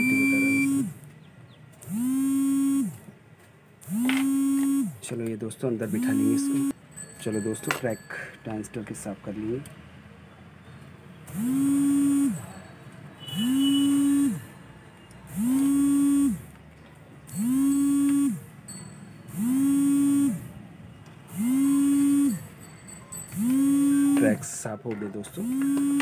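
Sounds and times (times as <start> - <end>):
small electric motor tool whirring: 0.1 - 1.0, 1.8 - 3.0, 3.8 - 5.0, 5.9 - 6.8, 11.3 - 12.5, 13.4 - 14.5, 15.3 - 16.5, 17.3 - 18.5, 19.3 - 20.5, 21.3 - 22.5, 23.3 - 24.4, 25.4 - 26.0.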